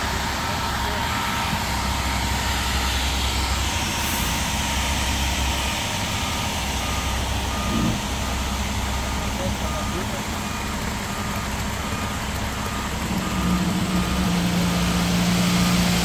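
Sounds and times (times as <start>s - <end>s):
diesel truck engine running: 0.0s - 16.0s
backup alarm beeping: 5.6s - 14.4s.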